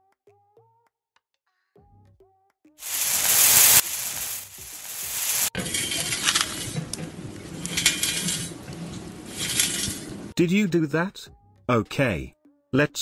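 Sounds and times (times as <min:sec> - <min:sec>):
harsh scraping and rasping: 0:02.8 - 0:10.4.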